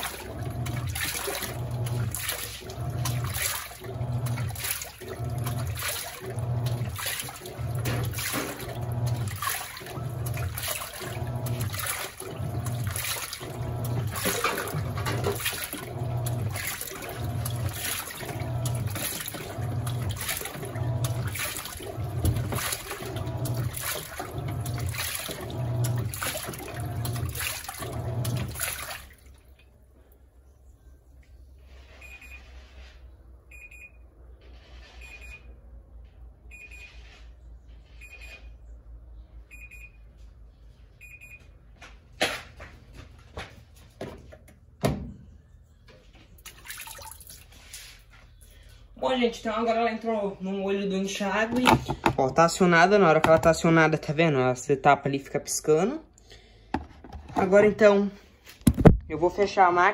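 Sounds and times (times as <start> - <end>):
low motor hum: 0.0 - 29.1
washing machine agitating water: 0.0 - 30.3, 46.3 - 54.6, 56.7 - 59.9
water trickle: 46.5 - 47.9.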